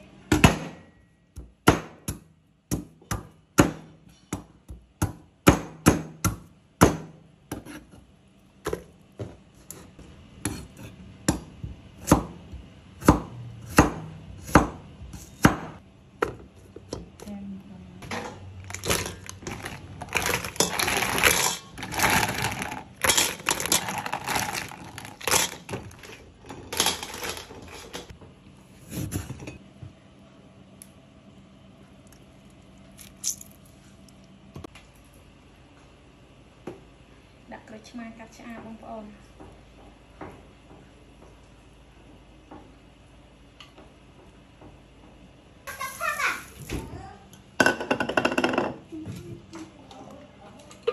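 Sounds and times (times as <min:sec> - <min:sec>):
snail shells rattling in metal pot: 0:18.7 - 0:28.1.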